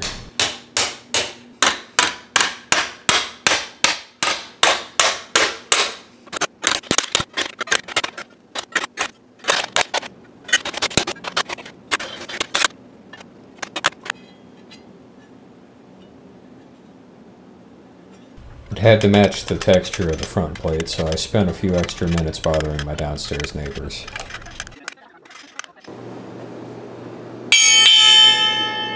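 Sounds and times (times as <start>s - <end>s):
hammer striking metal disc: 0.0s - 6.0s, 18.5s - 24.4s.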